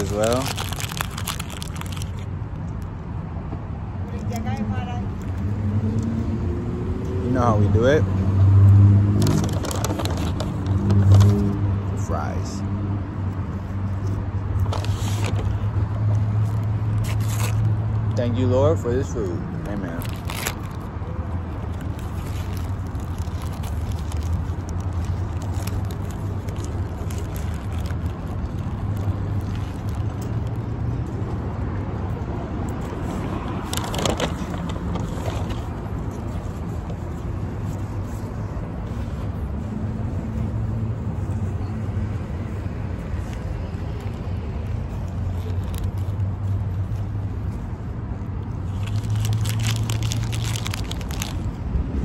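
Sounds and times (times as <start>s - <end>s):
paper wrapper rustling: 0.0s - 2.3s, 9.2s - 11.6s, 14.6s - 15.7s, 16.3s - 17.8s, 19.5s - 30.6s, 32.9s - 38.2s, 45.0s - 47.0s, 48.6s - 51.6s
road traffic rumble: 0.0s - 52.0s.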